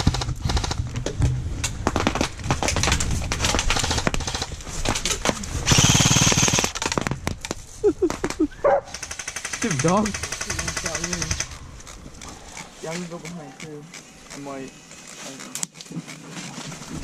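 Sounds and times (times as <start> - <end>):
rapid airsoft gunfire burst: 5.6 - 7.0, 8.9 - 11.5.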